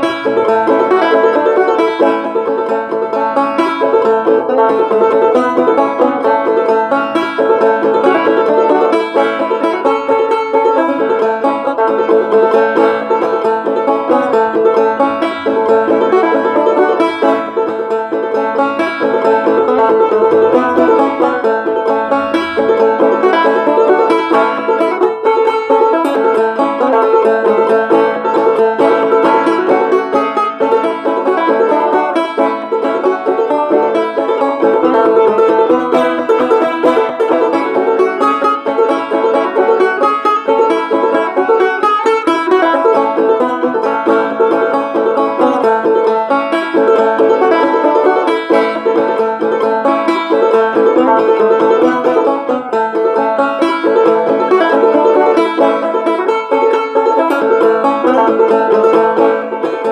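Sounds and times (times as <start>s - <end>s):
banjo plucking: 0.0s - 59.9s.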